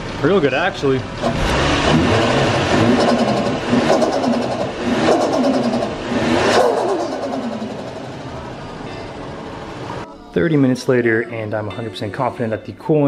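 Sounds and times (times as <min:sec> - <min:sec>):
car engine running: 0:00.0 - 0:10.0.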